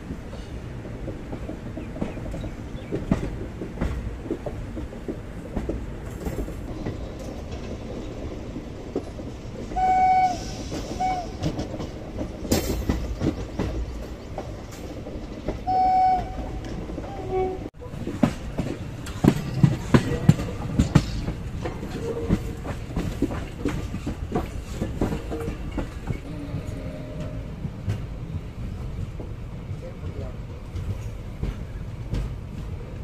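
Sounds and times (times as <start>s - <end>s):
train wheels clicking over rail joints: 0.0s - 33.0s
locomotive horn blasts: 9.8s - 11.4s, 15.6s - 17.7s.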